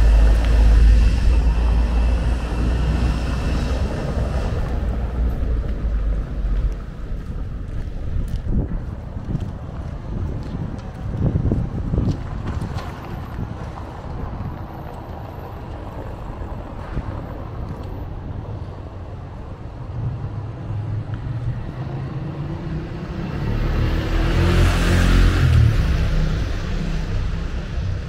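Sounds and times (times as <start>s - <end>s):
car engine hum: 0.0s - 8.2s.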